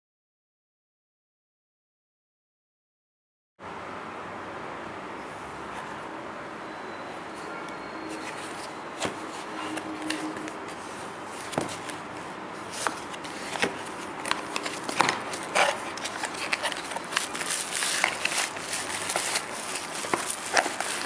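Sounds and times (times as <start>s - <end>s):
cardboard box handling: 8.1s - 21.0s.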